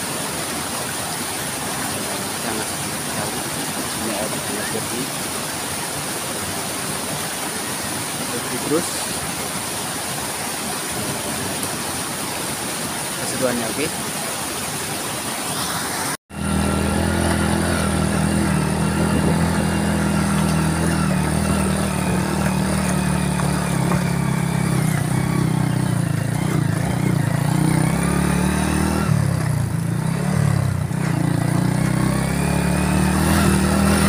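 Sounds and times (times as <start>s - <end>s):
water running over rocks: 0.0s - 34.0s
motorcycle engine running: 16.3s - 34.0s.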